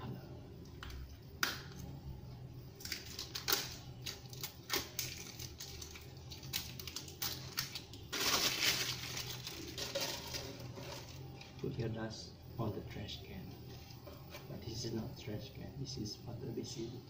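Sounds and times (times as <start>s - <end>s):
duct tape crackling: 2.6s - 11.9s.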